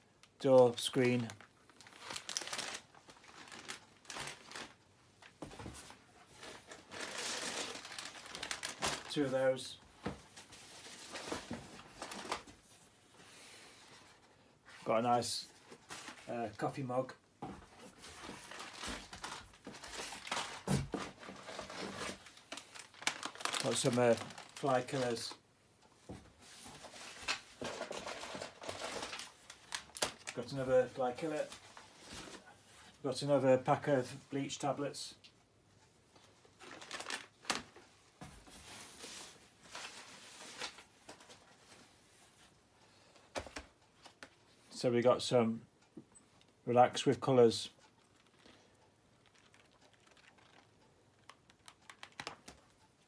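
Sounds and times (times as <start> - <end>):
cardboard and plastic rustling: 0.5 - 13.0, 15.5 - 16.8, 17.4 - 25.4, 26.0 - 32.9, 36.2 - 44.5, 47.8 - 52.8.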